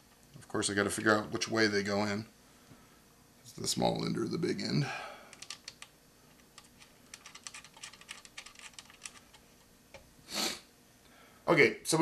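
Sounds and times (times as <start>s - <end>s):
short breathy hiss: 10.2s - 11.3s.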